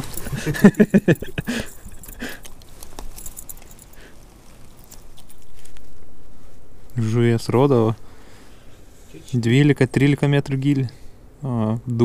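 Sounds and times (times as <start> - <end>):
hands handling fish clicks and rustles: 0.0 - 6.1
steady hiss: 0.0 - 12.0.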